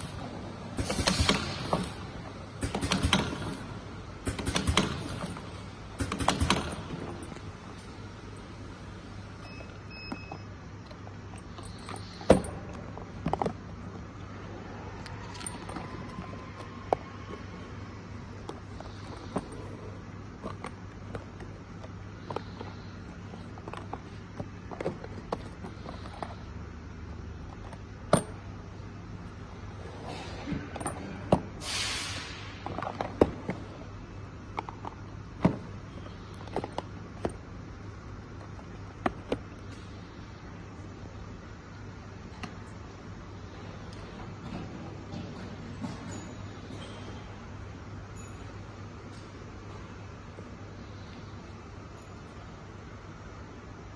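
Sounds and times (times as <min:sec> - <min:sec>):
brief hiss: 0:31.6 - 0:32.6.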